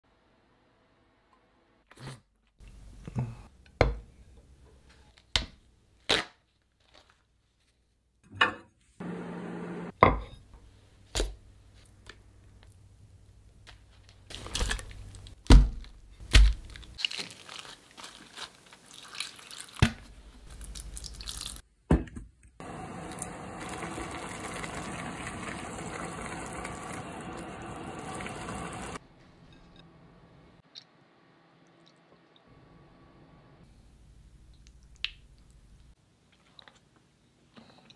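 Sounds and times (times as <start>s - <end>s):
steady cooking hiss: 9.0s - 9.9s, 22.6s - 29.0s
liquid pouring: 22.6s - 29.0s.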